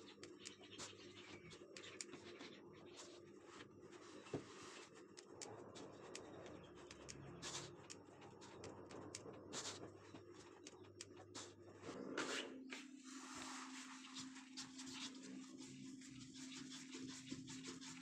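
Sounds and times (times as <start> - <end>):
whisk scraping and tapping dough: 14.1 - 18.0.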